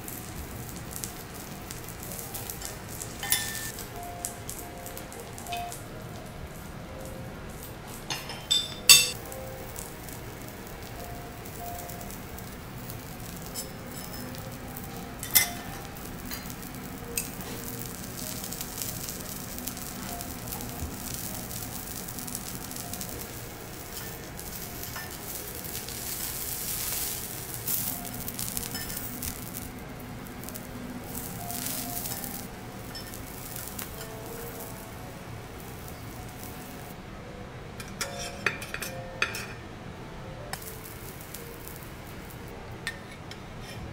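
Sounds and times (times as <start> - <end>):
vegetables sizzling on a griddle: 0.0 - 37.0, 40.6 - 43.9
metal utensil scraping a plate: 37.9 - 39.6, 42.9 - 43.9.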